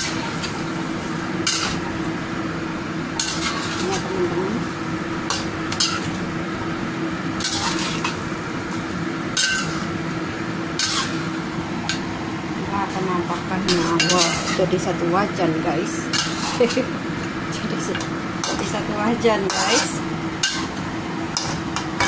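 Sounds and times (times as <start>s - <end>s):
spatula scraping a wok: 0.0s - 1.8s, 3.2s - 4.1s, 4.7s - 6.2s, 7.4s - 8.4s, 9.4s - 10.0s, 10.8s - 11.4s, 13.6s - 14.6s, 16.1s - 16.9s, 19.4s - 20.8s, 21.4s - 22.0s
steady low hum: 0.0s - 22.0s.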